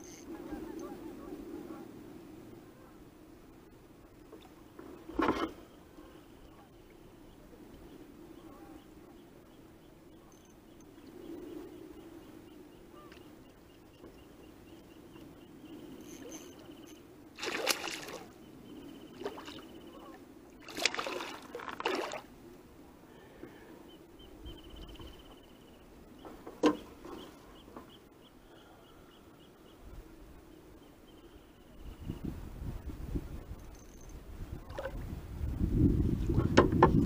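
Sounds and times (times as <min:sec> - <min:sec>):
fish splashing and thrashing: 0:17.4 - 0:18.4, 0:20.6 - 0:22.3.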